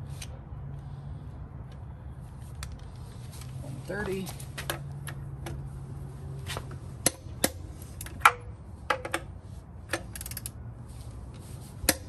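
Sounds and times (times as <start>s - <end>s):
metal wrench clinking on lug nuts: 9.9s - 10.6s.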